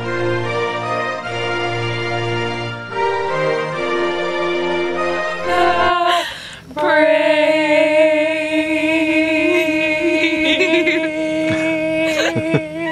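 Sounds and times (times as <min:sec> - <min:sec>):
woman singing long note: 0:05.3 - 0:12.9
laughter: 0:10.4 - 0:12.9.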